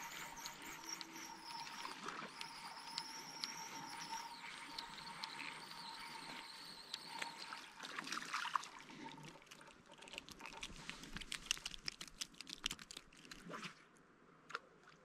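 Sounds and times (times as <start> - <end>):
rapid faint clicks: 0.0 - 7.7, 10.0 - 13.4
fish splashing: 6.3 - 13.6.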